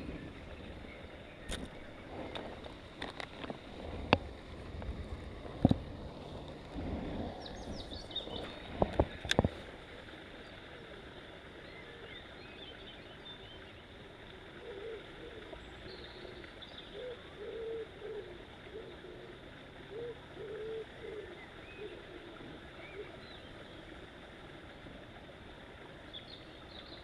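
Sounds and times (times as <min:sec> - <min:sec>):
pigeon cooing: 0:14.6 - 0:15.5, 0:16.9 - 0:23.2.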